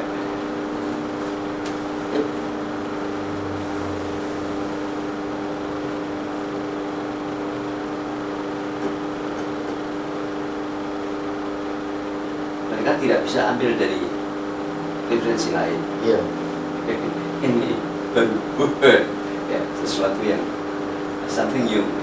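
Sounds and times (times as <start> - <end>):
room hum with tones: 0.0 - 22.0.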